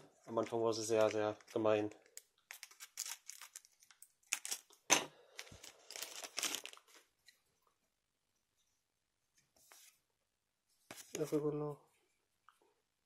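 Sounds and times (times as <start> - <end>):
plastic wrapper crinkling: 0.8 - 4.7, 5.4 - 7.1.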